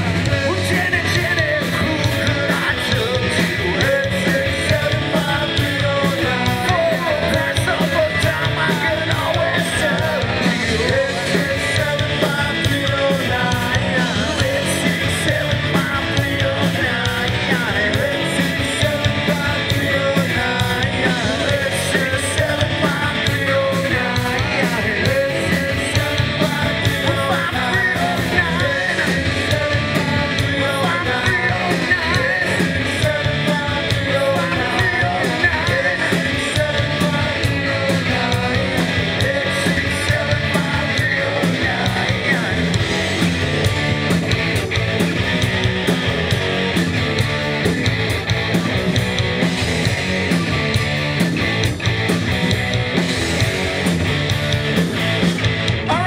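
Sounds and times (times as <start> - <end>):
person singing: 0.0 - 43.4
live rock band playing: 0.0 - 56.0.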